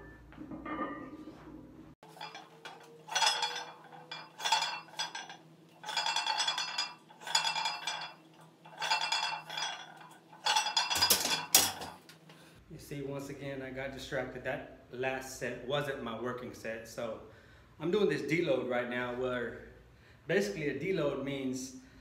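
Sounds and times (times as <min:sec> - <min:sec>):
weight plates clinking on barbell: 0:02.0 - 0:12.0.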